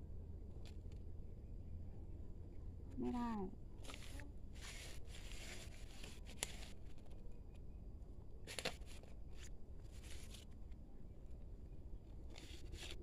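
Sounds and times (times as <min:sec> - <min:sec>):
hands rustling potting soil: 0:03.8 - 0:07.7, 0:08.3 - 0:13.0.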